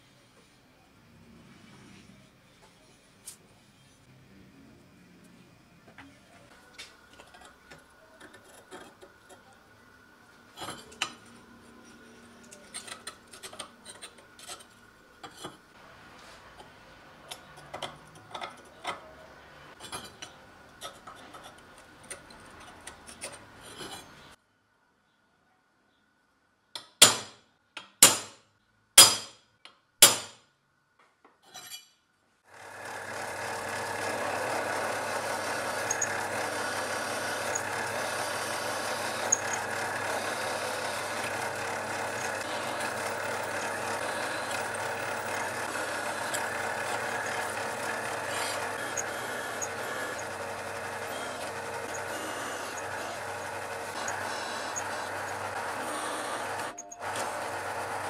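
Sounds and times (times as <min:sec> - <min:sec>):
caliper scratching on steel: 0:07.2 - 0:09.5, 0:11.8 - 0:15.7, 0:16.6 - 0:24.3, 0:31.4 - 0:32.0, 0:34.9 - 0:57.0
drill press drilling steel: 0:32.6 - 0:58.0.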